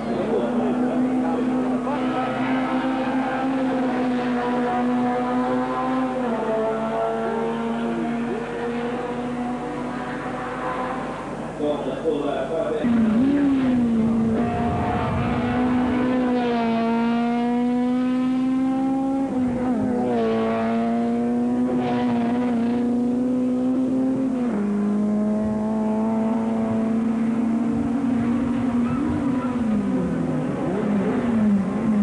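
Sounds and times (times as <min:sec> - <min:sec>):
racing car engines passing: 0:00.0 - 0:32.0.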